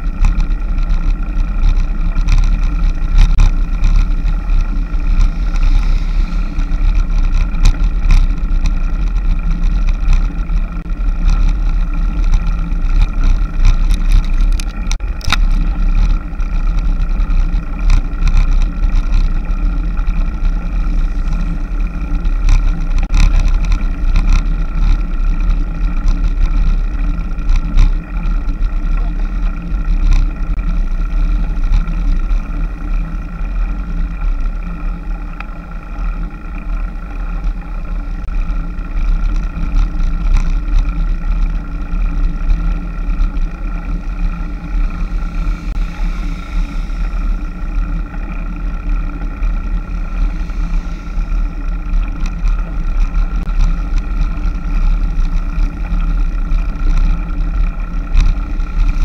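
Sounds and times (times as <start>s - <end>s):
clicks and knocks from bumps: 0.0s - 5.7s, 6.6s - 33.3s, 33.9s - 44.3s
road noise: 0.0s - 59.0s
wind rumble: 0.0s - 59.0s.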